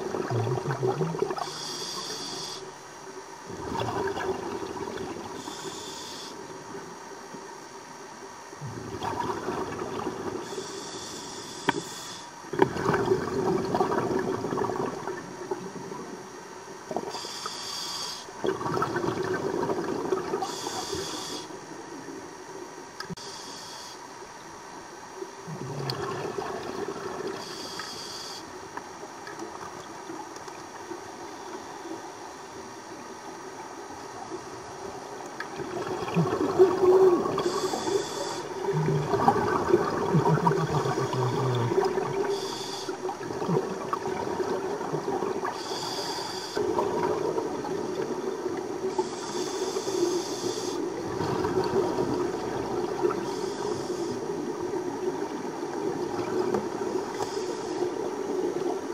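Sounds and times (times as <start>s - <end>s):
exhaled bubbles gurgling: 0.0s - 2.6s, 3.5s - 5.6s, 8.6s - 10.8s, 12.5s - 16.3s, 18.4s - 21.4s, 25.4s - 27.8s, 34.2s - 58.9s
regulator inhalation hissing: 1.4s - 2.7s, 5.4s - 6.4s, 10.4s - 12.4s, 17.1s - 18.3s, 20.4s - 21.6s, 27.4s - 28.5s, 37.3s - 39.0s, 40.6s - 43.1s, 45.5s - 46.8s, 48.9s - 51.0s, 53.0s - 54.4s, 57.1s - 58.1s.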